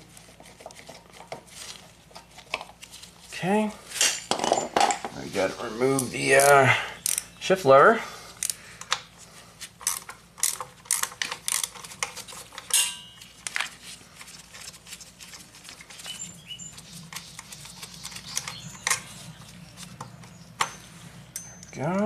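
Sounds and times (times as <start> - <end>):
metal tools clicking: 6.0 - 7.4
ringing metal clink: 12.7 - 13.3, 20.7 - 22.0.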